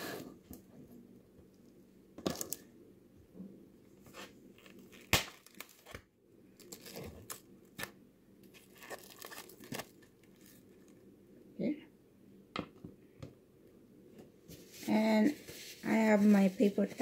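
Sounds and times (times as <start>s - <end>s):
plastic cling wrap crinkling: 4.1s - 6.0s, 6.6s - 11.0s.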